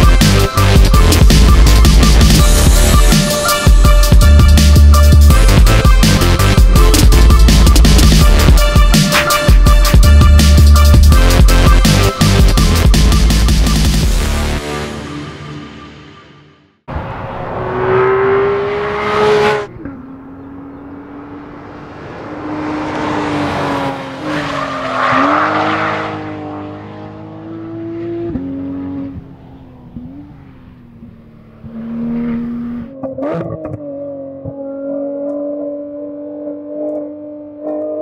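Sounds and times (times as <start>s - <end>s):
sports car engine revving: 16.9s - 38.0s.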